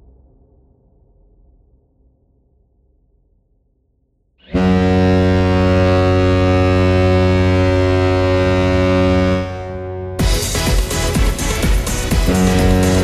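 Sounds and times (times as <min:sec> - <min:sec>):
goal horn blast: 0:04.5 - 0:13.0.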